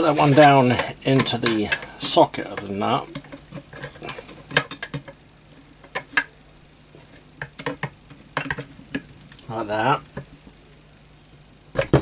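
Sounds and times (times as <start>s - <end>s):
metal clicks and scrapes: 0.0s - 6.3s.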